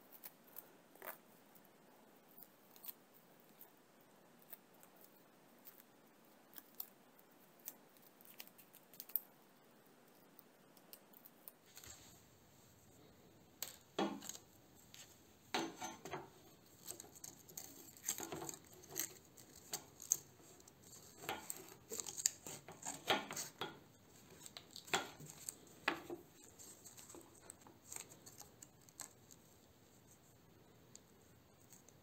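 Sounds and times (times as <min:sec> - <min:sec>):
metal strip clicks and scrapes: 0:15.5 - 0:26.0.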